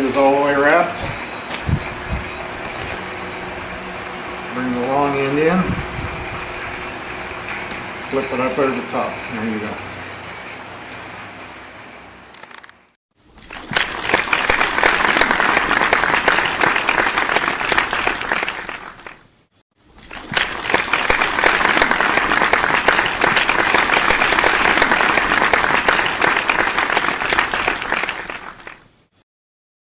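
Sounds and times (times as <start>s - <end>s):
crowd applauding: 13.5s - 19.2s, 20.1s - 28.9s.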